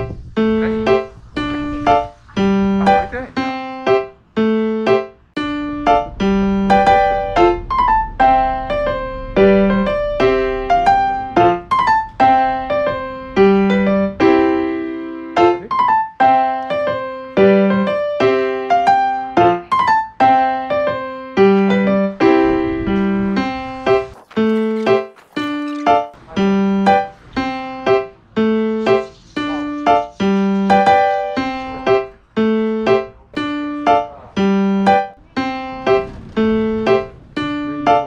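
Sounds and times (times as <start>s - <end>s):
bouncy keyboard tune: 1.9s - 38.0s
low bass note: 5.4s - 15.4s.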